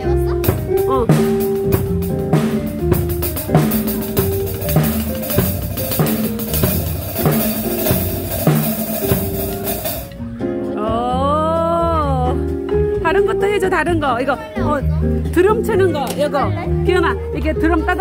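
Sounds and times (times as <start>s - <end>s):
drum kit played with sticks: 0.0s - 14.1s
music playing: 0.0s - 18.0s.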